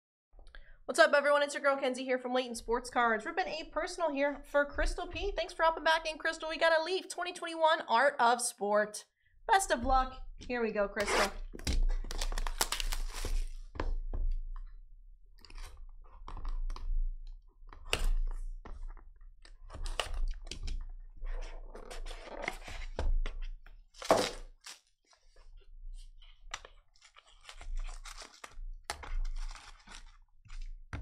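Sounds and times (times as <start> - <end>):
shrink wrap crinkling and tearing: 11.3 - 13.7, 26.6 - 30.8
cardboard handling: 26.6 - 30.9.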